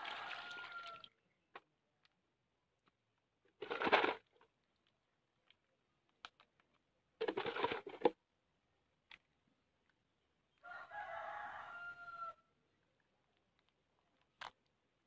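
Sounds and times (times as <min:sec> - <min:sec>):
rooster crowing: 0:00.0 - 0:01.0, 0:10.6 - 0:12.5.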